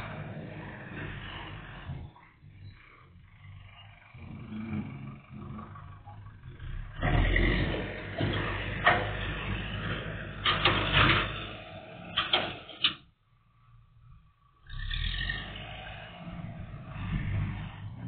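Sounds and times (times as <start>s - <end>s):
diesel engine revving: 0.0s - 18.0s.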